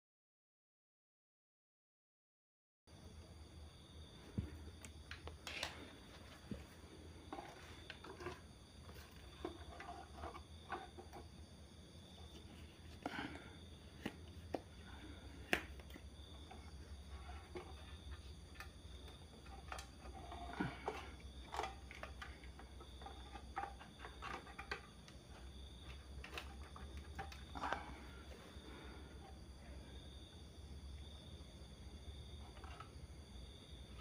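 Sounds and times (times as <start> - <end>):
hands handling circuit board parts: 15.4 - 28.0.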